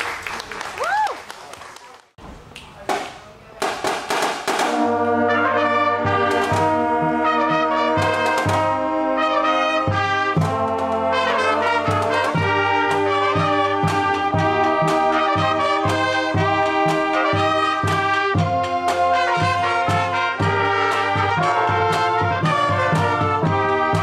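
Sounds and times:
sharp drum hits: 2.9 - 5.0
brass band playing: 3.8 - 24.0.

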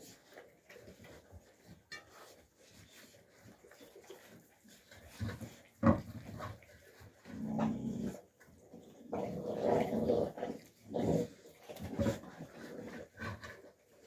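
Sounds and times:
puppies growling: 5.2 - 8.4, 9.0 - 13.8.

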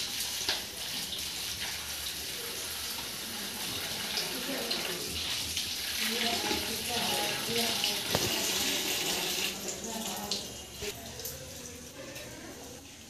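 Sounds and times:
tap water splashing into bowl: 0.0 - 1.7, 3.0 - 8.8.

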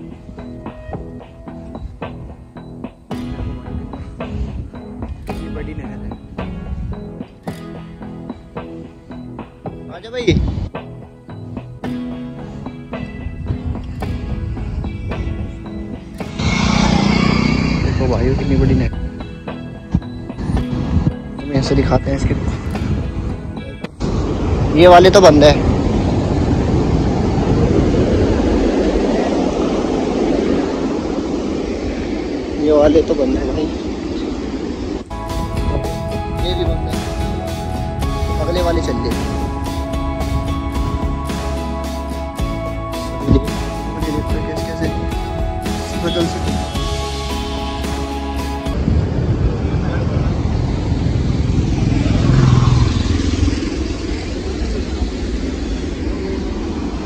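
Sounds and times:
vehicle engine passing: 16.2 - 18.8, 48.8 - 57.0.

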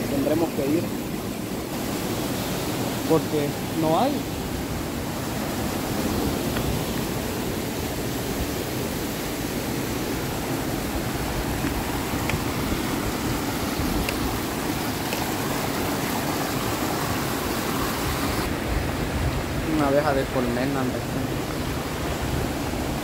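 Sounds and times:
water tumbling over rocks: 11.0 - 17.3.

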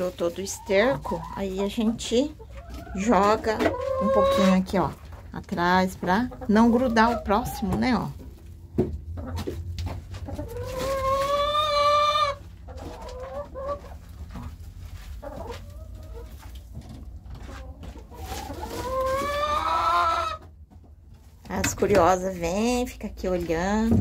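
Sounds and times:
chickens clucking: 0.0 - 24.0
chicken long drawn-out calls: 10.3 - 14.1, 18.1 - 20.5.

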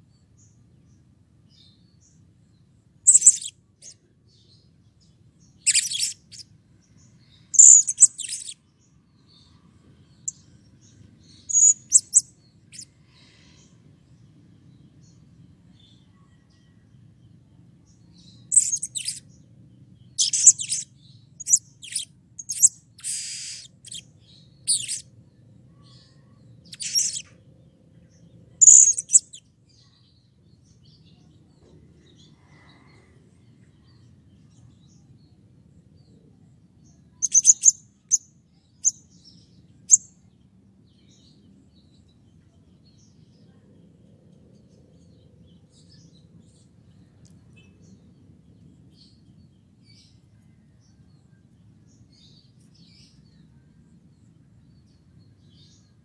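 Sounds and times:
parrot shrill chirping calls: 23.0 - 23.7.

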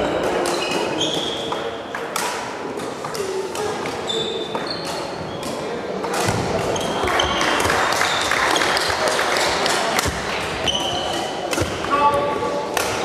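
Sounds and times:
rackets striking shuttlecock: 0.0 - 7.8, 8.6 - 13.0
shoes squeaking on wooden floor: 4.0 - 5.5, 10.6 - 11.2.

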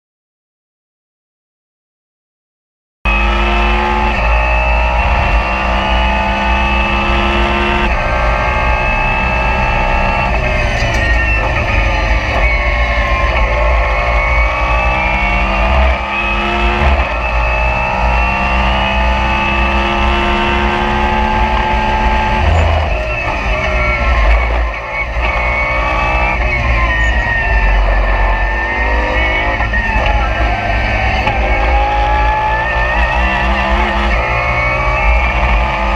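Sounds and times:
race car engine at speed: 3.1 - 35.9.

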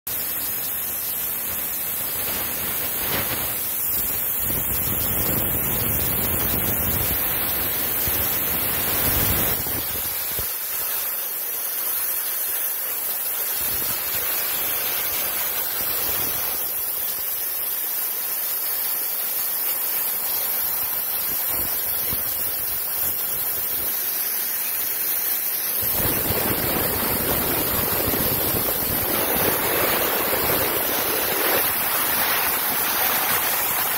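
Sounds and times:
loud rushing hiss of leaking pipe: 0.1 - 33.9.

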